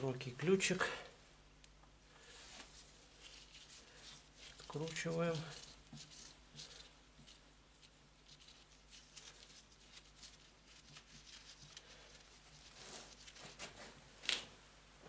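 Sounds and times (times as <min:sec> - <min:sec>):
gloved hand rustling: 0:02.2 - 0:14.1.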